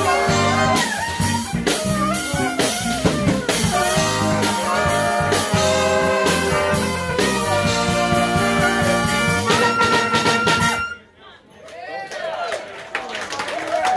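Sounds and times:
bass line: 0.0 - 11.0
drums: 0.0 - 11.0
saxophones playing held chords: 0.0 - 11.1.

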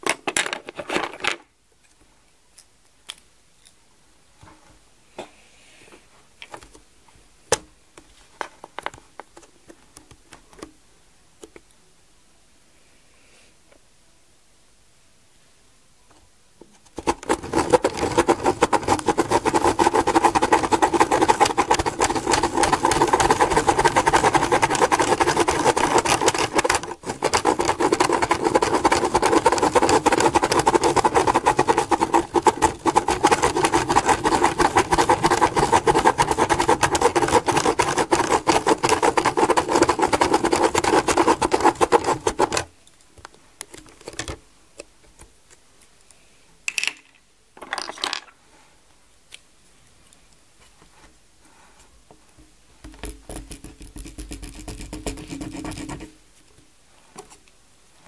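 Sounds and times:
pen running over paper: 17.0 - 42.7, 53.3 - 56.2.

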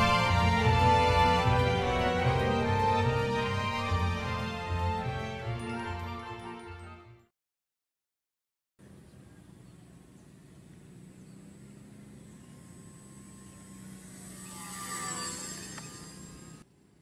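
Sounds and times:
model plane motor droning: 10.6 - 16.7.

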